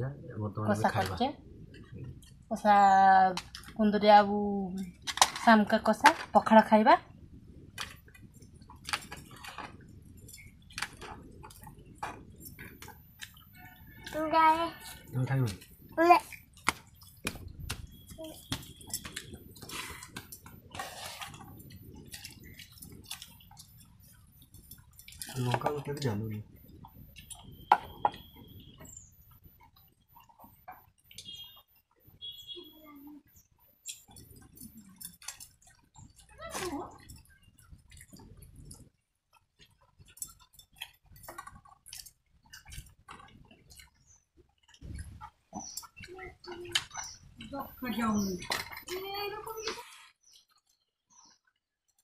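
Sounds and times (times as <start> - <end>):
quiet chewing: 1.5 - 2.5, 7.6 - 52.0
small irregular clicks: 3.2 - 4.1, 4.7 - 52.0
wet squelching of rice mixing: 7.6 - 27.6.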